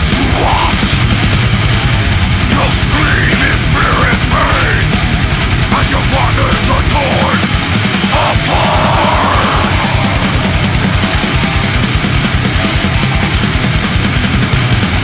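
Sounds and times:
heavy metal song: 0:00.0 - 0:15.0.

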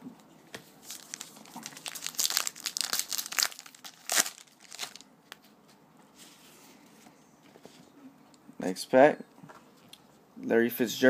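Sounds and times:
sharp paper crunch: 0:00.8 - 0:05.0
paper wrapper crinkling: 0:00.8 - 0:05.1.

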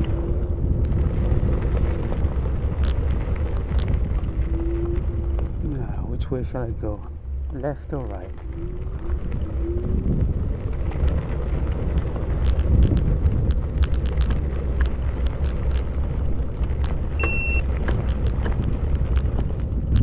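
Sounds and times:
bike tyres rolling on trail: 0:00.0 - 0:20.0
wind on microphone: 0:00.0 - 0:20.0
small clicks and rattles: 0:00.8 - 0:05.6, 0:10.2 - 0:20.0
high beep: 0:17.2 - 0:17.6.

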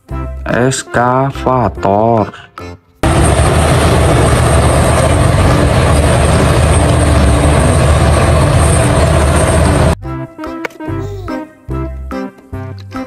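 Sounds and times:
excavator diesel engine: 0:03.0 - 0:10.0.

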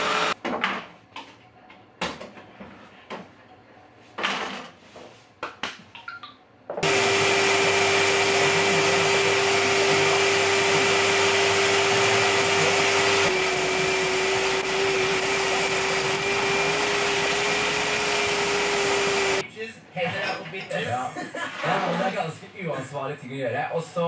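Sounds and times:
shop vacuum running: 0:00.0 - 0:00.4, 0:06.8 - 0:19.4.

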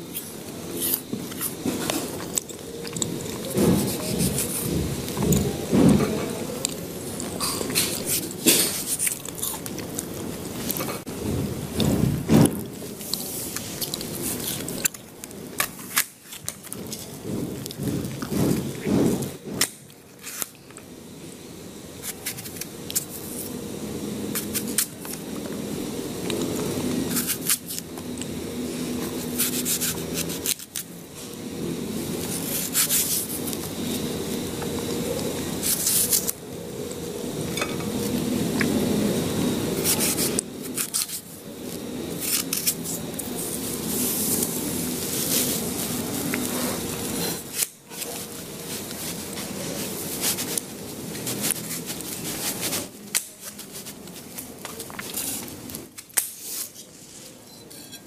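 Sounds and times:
paring knife peeling vegetable: 0:00.0 - 0:58.0.

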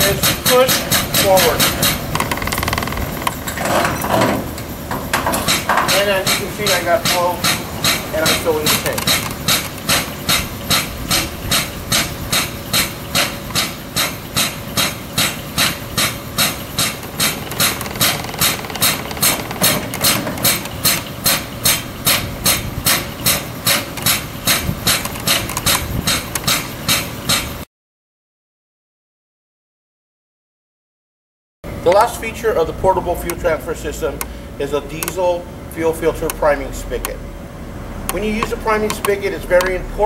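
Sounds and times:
diaphragm pump air puffs: 0:00.0 - 0:27.6.

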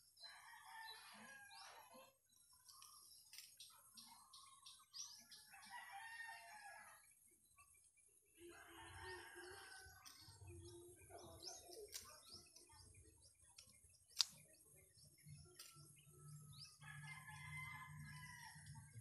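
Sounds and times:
faint birds chirping: 0:00.0 - 0:19.0
pruning shears snipping: 0:13.6 - 0:14.4.

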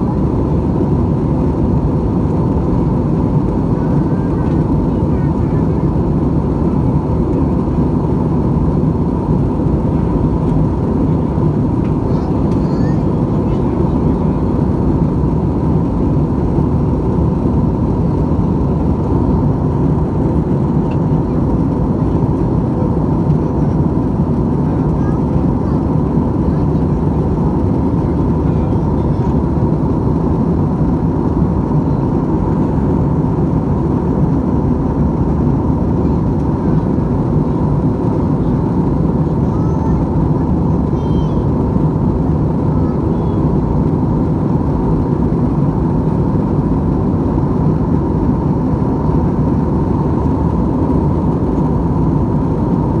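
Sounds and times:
jet cabin engine drone: 0:00.0 - 0:53.0.

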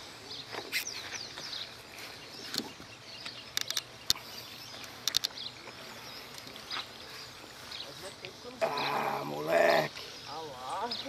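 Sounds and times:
faint bird calls: 0:00.0 - 0:11.0
sharp clicks: 0:02.5 - 0:04.2, 0:04.8 - 0:05.4.

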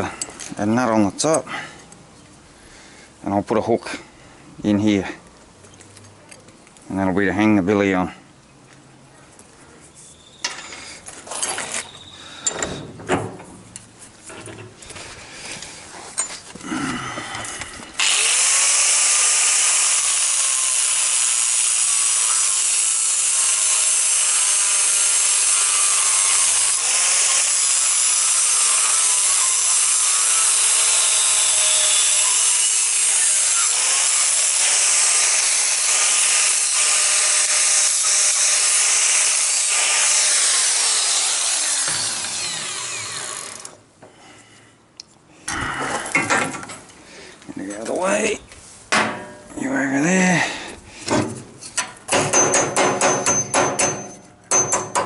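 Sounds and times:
angle grinder cutting metal: 0:18.0 - 0:43.8.

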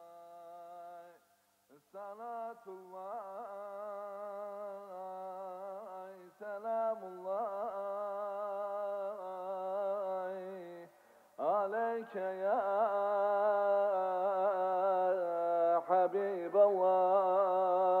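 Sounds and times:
man singing devotional chant: 0:00.0 - 0:18.0
singer breathing in: 0:10.9 - 0:11.4.

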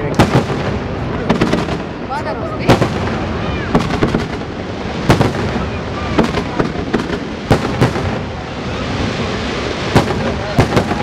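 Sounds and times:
noisy fireworks din: 0:00.0 - 0:11.0
firework shells bursting: 0:02.7 - 0:08.4.

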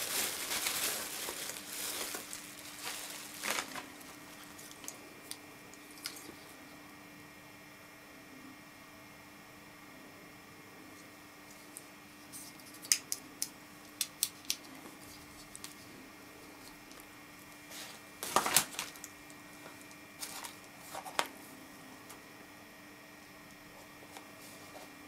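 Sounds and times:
cable and clips handled: 0:00.0 - 0:05.4
crackling rustle: 0:00.0 - 0:06.4.

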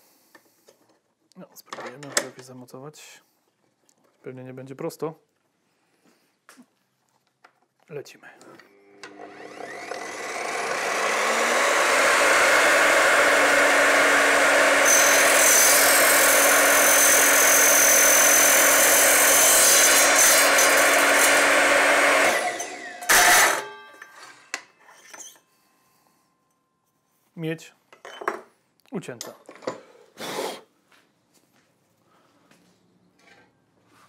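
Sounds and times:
mitre saw cutting pipe: 0:09.0 - 0:23.8.

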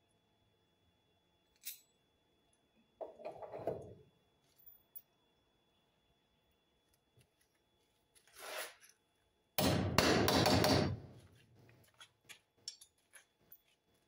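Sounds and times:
hammer knocking on timber post: 0:09.6 - 0:11.0.

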